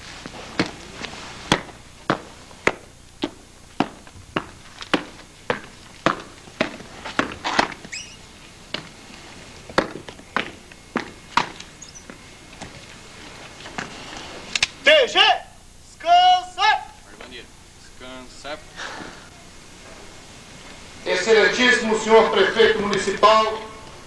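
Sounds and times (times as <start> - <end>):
footsteps walking: 0.0 - 14.5.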